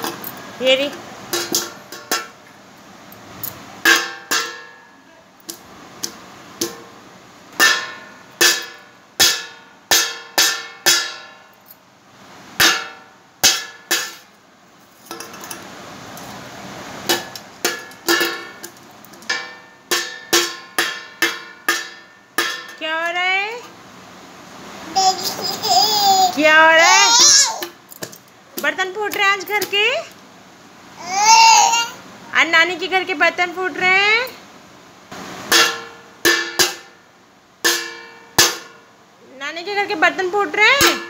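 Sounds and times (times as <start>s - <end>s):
steel cup banging on metal plate: 1.3s - 2.4s, 3.8s - 4.8s, 5.5s - 6.9s, 7.6s - 11.4s, 12.6s - 14.3s, 17.1s - 22.8s, 35.5s - 37.0s, 37.6s - 38.9s, 40.7s - 41.0s.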